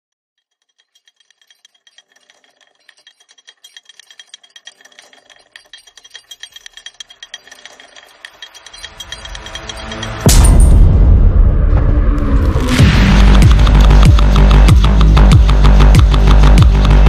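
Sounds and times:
rattling electronic ticks: 0.4 - 10.3, 12.7 - 17.0
low bass: 10.3 - 17.0.

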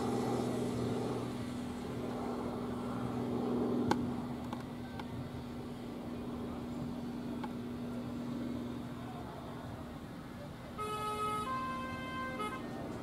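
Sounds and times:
diesel locomotive engine hum: 0.0 - 13.0
two-note railway horn: 10.8 - 12.8.

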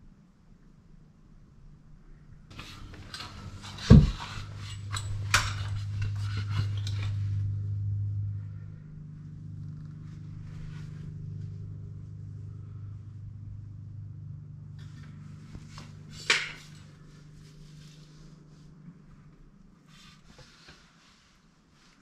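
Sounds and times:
steady low hum: 0.0 - 22.0
light clicks and clatters: 2.5 - 7.5
heavy thump: 3.8 - 4.4.

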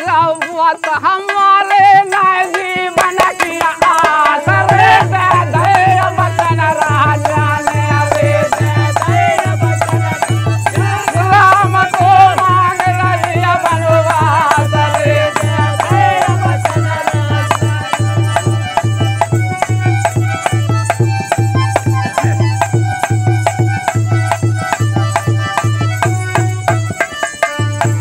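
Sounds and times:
men singing in chorus: 0.0 - 25.6
dholak drum beat: 0.0 - 28.0
hand clapping: 3.0 - 8.2.

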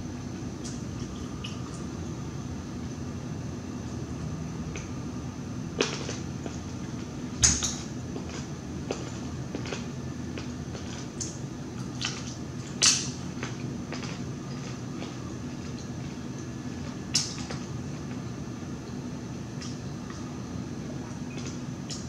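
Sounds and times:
chewing and mouth sounds: 5.8 - 18.2.

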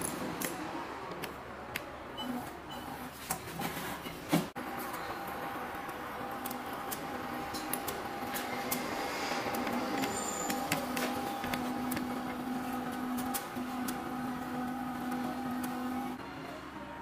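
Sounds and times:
wire feeder machine humming: 4.6 - 17.0.

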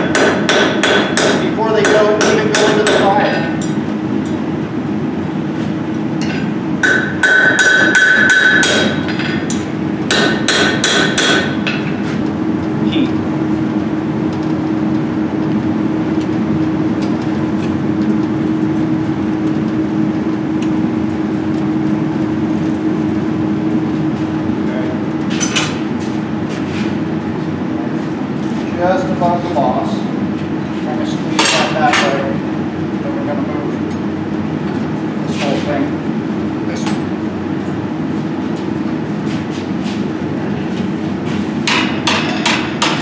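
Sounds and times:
hammer striking steel on anvil: 0.0 - 4.4, 6.2 - 11.8, 41.6 - 43.0
steady low hum: 0.0 - 43.0.

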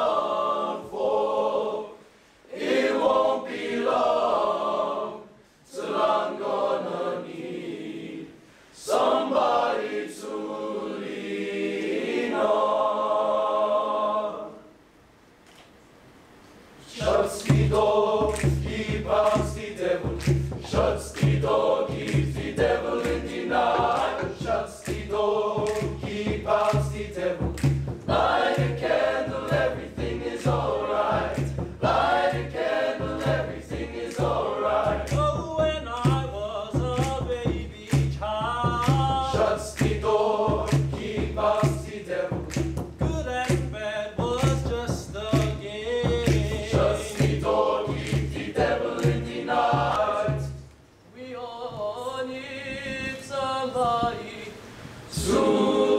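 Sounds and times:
boys' choir singing: 0.0 - 14.7, 16.8 - 50.6, 51.2 - 55.9
hand claps: 17.0 - 28.8, 30.3 - 30.7, 31.3 - 31.6, 33.2 - 35.4, 36.0 - 45.6, 46.2 - 50.4.

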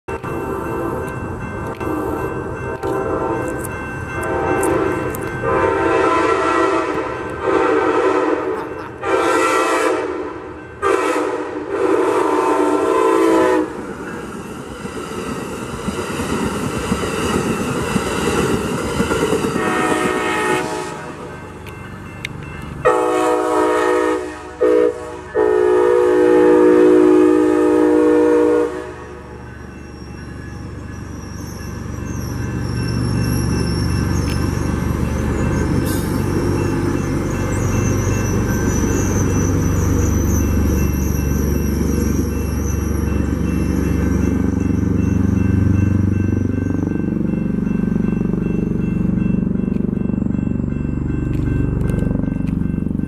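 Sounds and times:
train wheels rolling past: 0.1 - 53.0
train air horn blasts: 2.8 - 3.5, 4.2 - 13.8, 19.6 - 21.3, 22.8 - 29.4
locomotive horn blasts: 2.8 - 3.6, 4.2 - 13.8, 19.6 - 21.3, 22.8 - 29.4.

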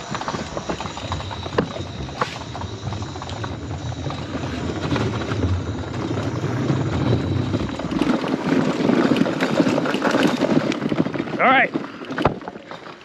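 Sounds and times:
wheels rumbling on wooden boards: 0.0 - 13.0.

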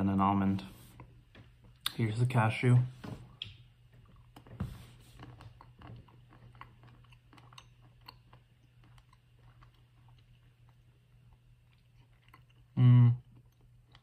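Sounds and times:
low steady hum: 0.0 - 14.0
chewing a nut: 5.1 - 14.0.

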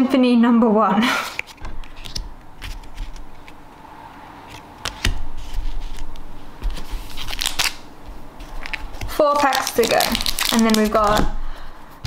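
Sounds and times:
cards sliding and tapping: 1.2 - 9.6.

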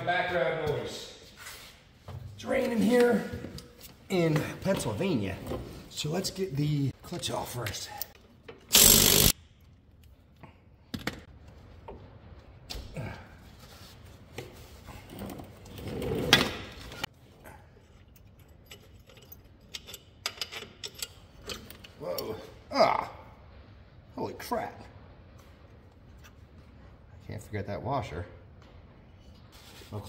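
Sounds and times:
impact wrench burst: 8.7 - 9.4
clicks and knocks of parts handled: 17.8 - 22.3.

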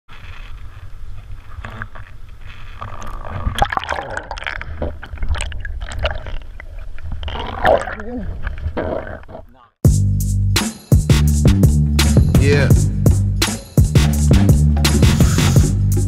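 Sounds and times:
underwater gurgling and bubbling: 2.8 - 9.4.

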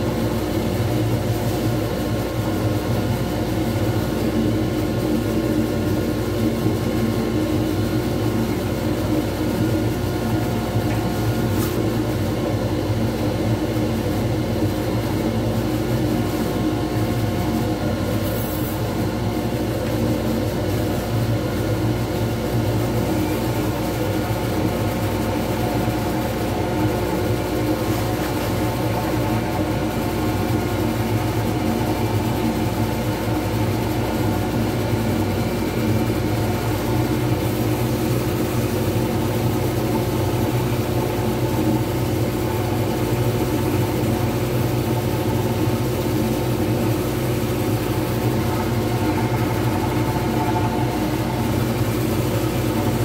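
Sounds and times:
wood lathe motor hum: 46.1 - 53.0.

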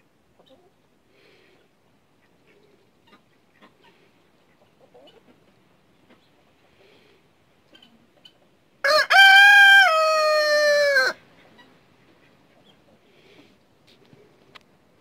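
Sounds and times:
rooster crowing: 8.8 - 11.2.

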